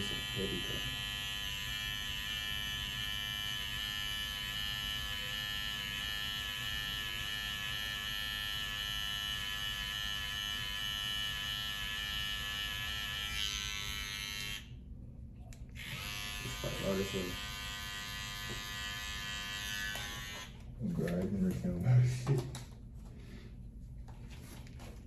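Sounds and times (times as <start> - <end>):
electric hair clippers buzzing: 0.0 - 14.7, 15.7 - 20.7.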